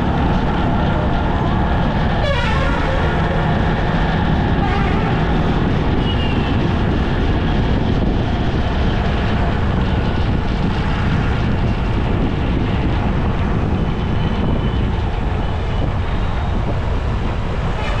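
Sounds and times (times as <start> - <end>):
scooter and motorcycle traffic: 0.0 - 18.0
vehicle engine and tyre rumble: 0.0 - 18.0
wind on microphone: 0.0 - 18.0.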